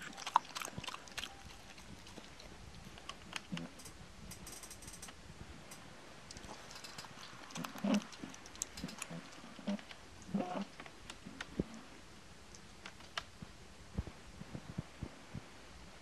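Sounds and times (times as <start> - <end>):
dog chewing and smacking: 0.0 - 3.8, 6.3 - 10.7.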